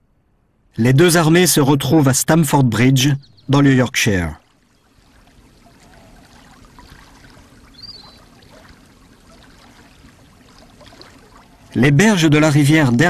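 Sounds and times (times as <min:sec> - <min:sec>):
flowing river water: 0:03.5 - 0:13.0
high chirp: 0:07.7 - 0:08.2.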